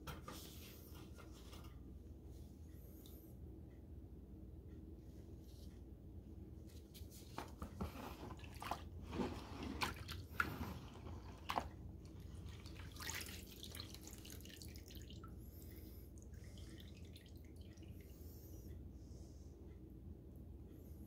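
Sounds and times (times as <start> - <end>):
liquid splashing in plastic tub: 7.8 - 15.3
liquid dripping into tub: 11.5 - 18.1.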